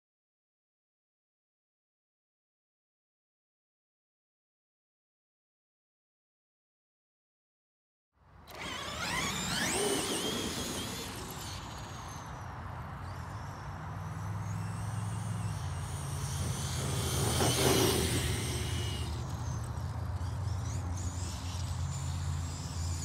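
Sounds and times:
toy truck motor whining: 8.5s - 23.0s.

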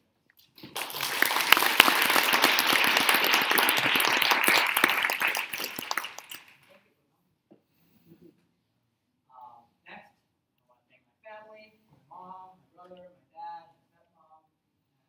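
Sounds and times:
audience applauding: 0.6s - 6.7s.

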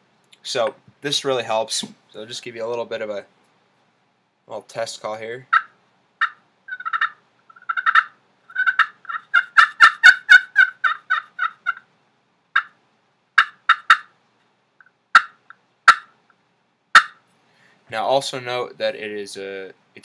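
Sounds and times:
turkey call yelps: 5.5s - 11.9s, 12.6s - 12.8s, 13.4s - 14.1s, 15.1s - 16.2s, 16.9s - 17.2s.

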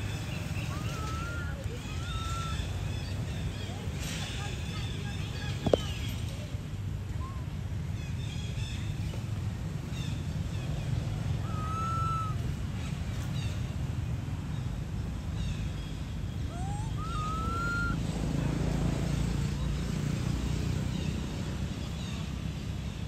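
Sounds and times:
whistled animal calls: 0.6s - 3.0s, 11.4s - 12.4s, 16.5s - 18.0s.

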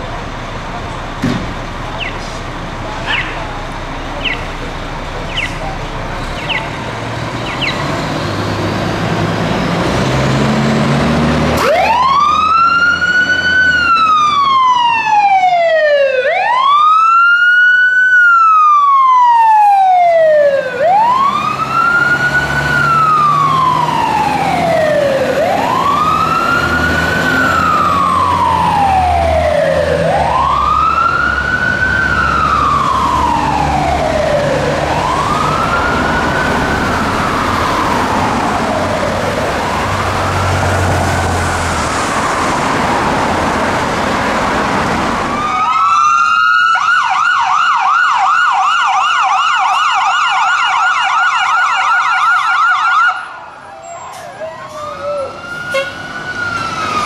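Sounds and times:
diesel engine revving: 0.0s - 15.6s, 19.0s - 45.5s
fire truck siren wailing: 0.0s - 57.0s.

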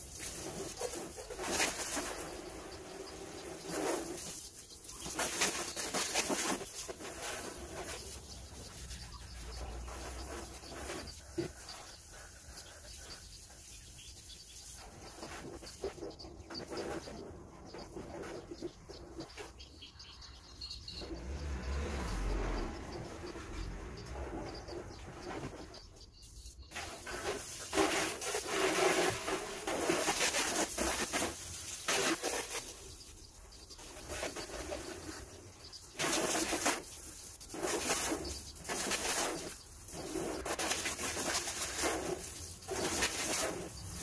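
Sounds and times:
hose spraying water on a car: 0.0s - 15.8s, 26.3s - 33.2s, 34.1s - 44.0s.

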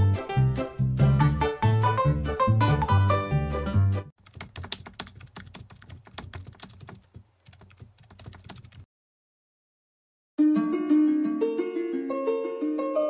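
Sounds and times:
keyboard typing clicks: 4.2s - 8.9s.

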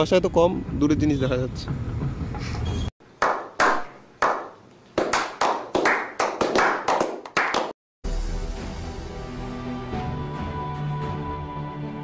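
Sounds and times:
people clapping: 3.2s - 7.8s.

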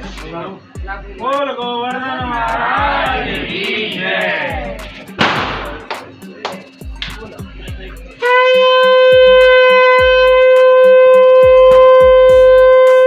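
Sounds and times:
rhythmic beats and clinks: 2.2s - 8.2s
conch shell blast: 8.2s - 13.0s.

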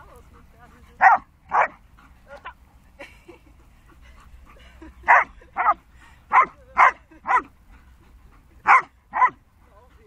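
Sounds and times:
dog barking: 1.0s - 1.8s, 5.1s - 7.4s, 8.6s - 9.4s.

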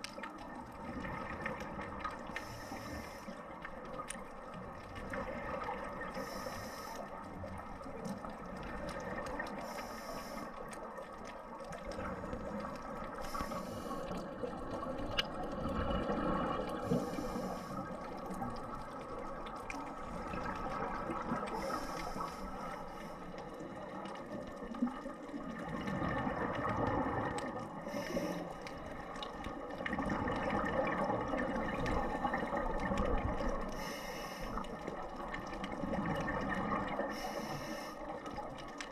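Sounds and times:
regulator breathing hiss: 2.3s - 3.4s, 6.2s - 7.1s, 9.5s - 10.6s, 13.2s - 14.2s, 16.8s - 17.9s, 21.5s - 23.3s, 27.9s - 28.6s, 33.8s - 34.6s, 37.1s - 38.1s
gurgling exhaled bubbles: 11.5s - 22.7s, 23.4s - 33.8s, 34.7s - 37.2s.

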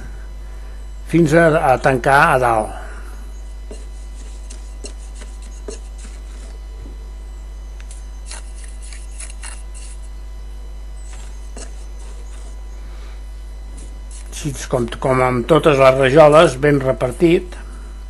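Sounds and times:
steady low hum: 0.0s - 18.0s
trowel scraping and tapping: 3.7s - 6.6s, 7.8s - 10.0s, 11.1s - 12.5s.

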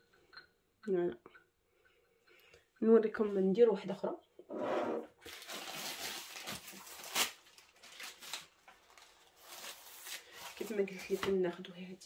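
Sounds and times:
pastry sheets and paper rustling: 5.2s - 12.0s.

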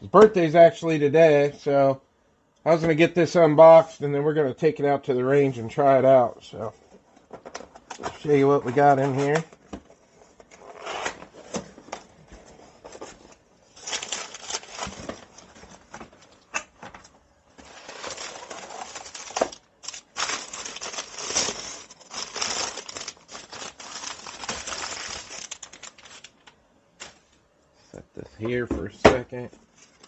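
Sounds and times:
cardboard rustling and crinkling: 6.8s - 27.3s, 29.6s - 30.0s.

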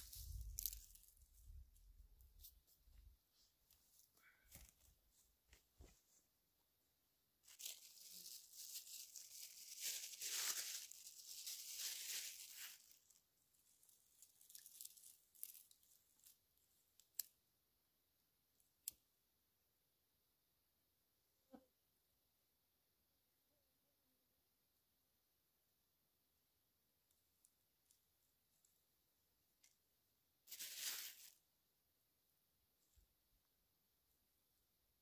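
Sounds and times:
bag crinkling and tearing: 0.0s - 1.2s, 7.4s - 13.2s, 13.8s - 16.3s, 30.5s - 31.4s
twigs snapping: 0.1s - 1.1s, 14.2s - 16.3s.

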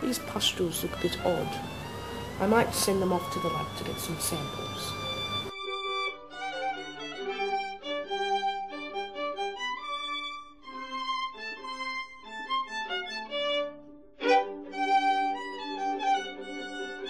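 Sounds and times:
violin melody: 0.0s - 17.0s.

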